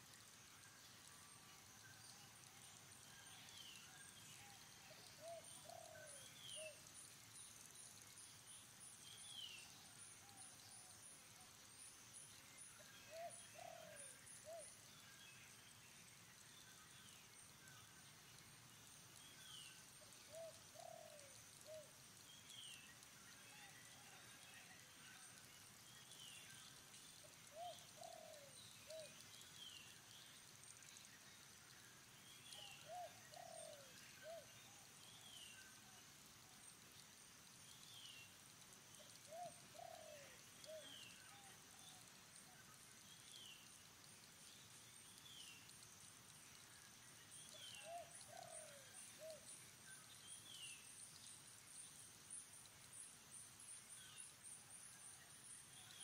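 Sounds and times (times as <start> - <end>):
bird chirping: 1.7 - 10.9, 12.4 - 17.8, 19.1 - 23.0, 25.2 - 31.5, 32.1 - 35.9, 37.6 - 56.0
faint dove cooing: 20.3 - 21.9, 27.5 - 29.1, 32.8 - 34.5.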